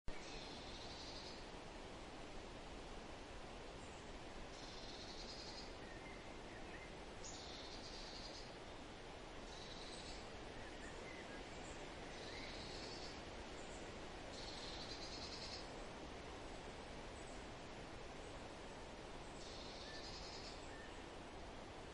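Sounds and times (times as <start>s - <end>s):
faint bird chirps: 0.1s - 1.5s, 3.8s - 15.8s, 19.2s - 21.1s
steady hiss: 0.1s - 21.9s.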